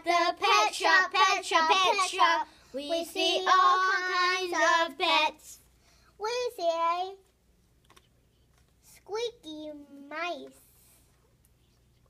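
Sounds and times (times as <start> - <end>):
child singing: 0.0 - 5.6.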